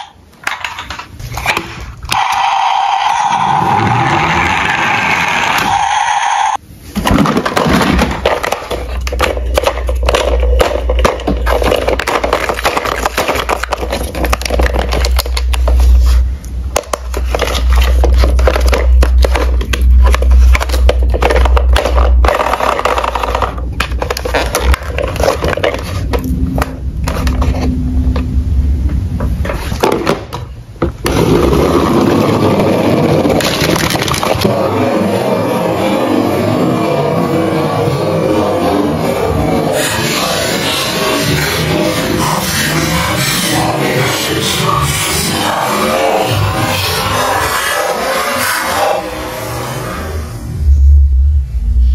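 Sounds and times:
plastic toy truck scraping and knocking: 0:07.0 - 0:27.8, 0:29.3 - 0:34.5
deep rumble: 0:08.1 - 0:29.9, 0:49.0 - 0:51.9.

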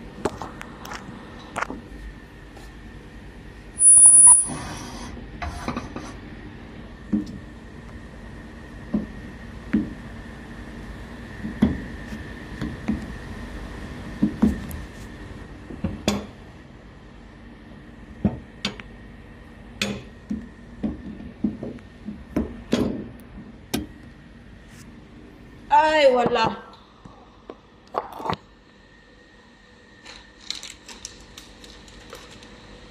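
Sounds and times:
steady low hum: 0:00.0 - 0:32.9.

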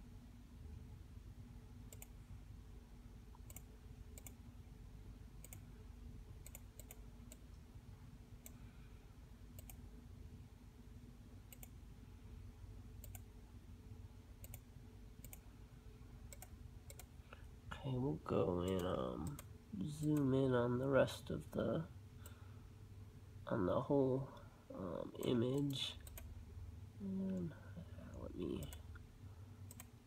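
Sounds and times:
low steady hum: 0:00.0 - 0:30.0
computer mouse clicking: 0:01.9 - 0:02.2, 0:03.3 - 0:04.4, 0:05.4 - 0:05.7, 0:06.4 - 0:07.6, 0:09.5 - 0:09.8, 0:11.5 - 0:11.8, 0:13.0 - 0:13.3, 0:14.4 - 0:15.5, 0:16.2 - 0:17.4, 0:18.6 - 0:19.5, 0:25.6 - 0:26.3, 0:29.6 - 0:30.0.

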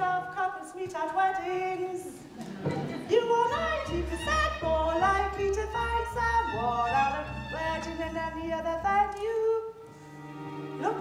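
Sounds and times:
instrumental accompaniment: 0:03.6 - 0:11.0.

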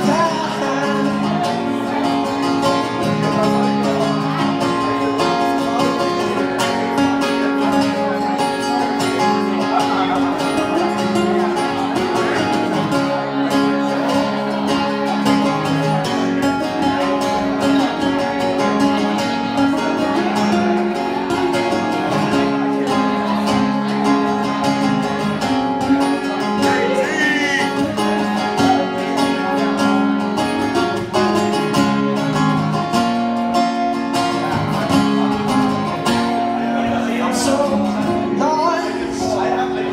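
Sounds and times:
person singing: 0:00.0 - 0:06.8, 0:19.2 - 0:31.1, 0:36.5 - 0:39.9
acoustic guitar chords: 0:00.0 - 0:39.9.

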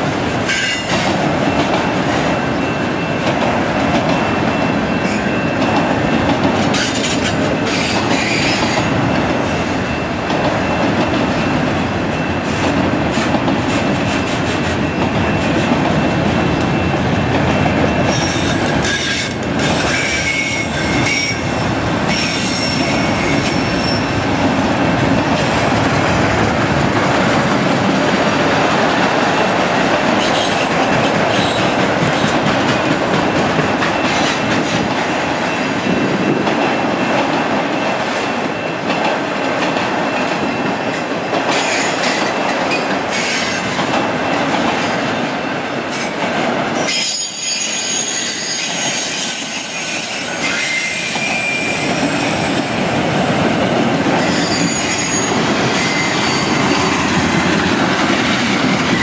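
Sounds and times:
freight cars rumbling on rails: 0:00.0 - 0:38.2, 0:50.2 - 0:59.0
high-pitched wheel squeal: 0:18.1 - 0:21.4, 0:46.9 - 0:52.9, 0:54.2 - 0:57.0.

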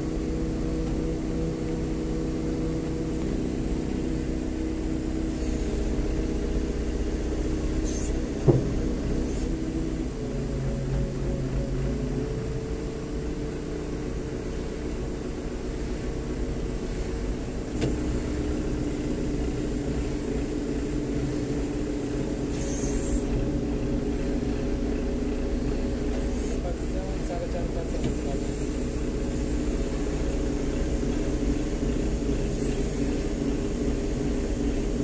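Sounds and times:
crane engine and hydraulics hum: 0:00.0 - 0:35.0
brief hiss: 0:07.8 - 0:08.2, 0:22.5 - 0:23.3.

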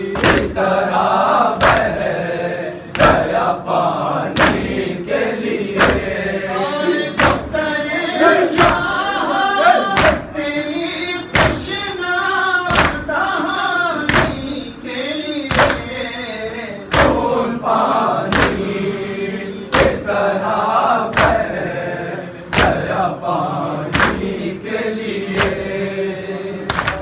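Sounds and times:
group chanting: 0:00.0 - 0:27.0
chest beating in unison: 0:11.3 - 0:11.8.

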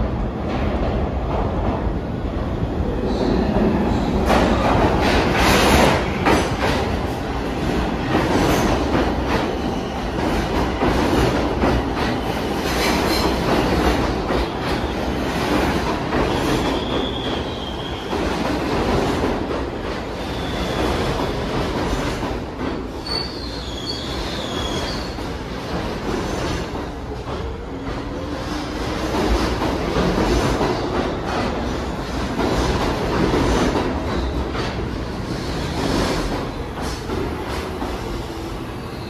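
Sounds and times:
train wheels rumbling on rails: 0:00.0 - 0:39.0
high-pitched wheel squeals: 0:23.0 - 0:25.2.

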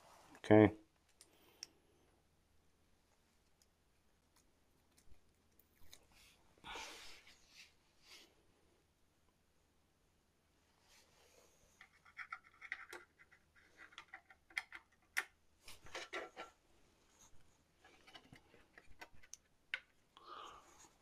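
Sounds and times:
scraping and rustling of parts: 0:15.6 - 0:16.6.

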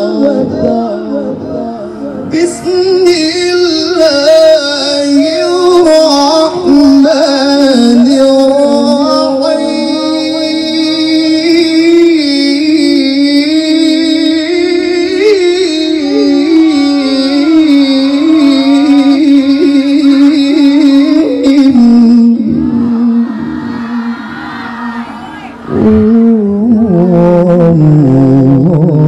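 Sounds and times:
man reciting melodically: 0:00.0 - 0:24.3, 0:25.6 - 0:29.0.

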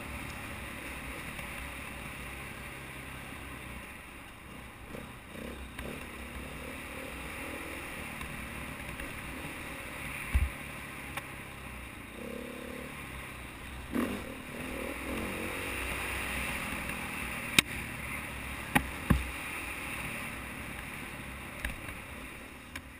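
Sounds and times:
dirt bike engine running: 0:04.5 - 0:09.6.

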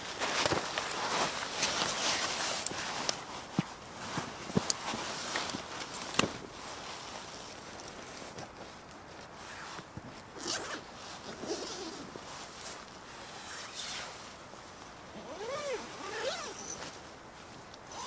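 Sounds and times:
tent zipper pulled: 0:10.4 - 0:12.1, 0:13.1 - 0:14.2, 0:15.1 - 0:16.9.

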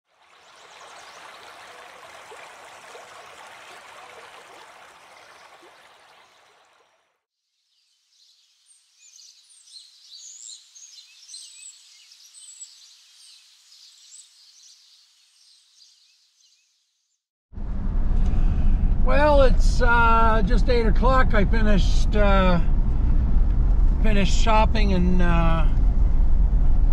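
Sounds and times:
running water rushing: 0:00.1 - 0:07.0
small birds chirping: 0:07.6 - 0:17.2
pickup truck cab hum: 0:17.6 - 0:26.9.

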